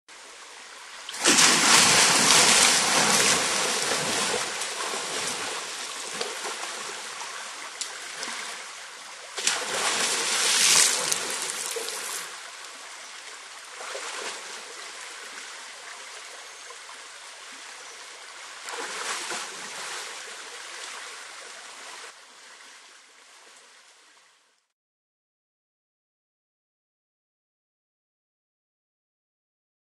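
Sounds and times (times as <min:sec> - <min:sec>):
elephant splashing through water: 0:01.2 - 0:08.6, 0:09.4 - 0:12.3.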